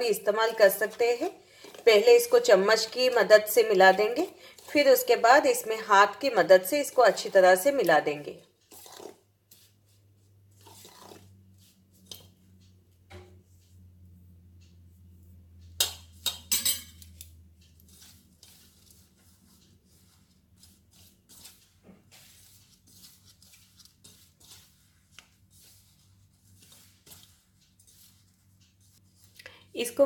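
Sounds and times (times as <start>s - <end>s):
fingers scraping flour in metal bowl: 0.0s - 12.6s, 17.0s - 30.0s
kitchenware clinks: 16.2s - 17.0s.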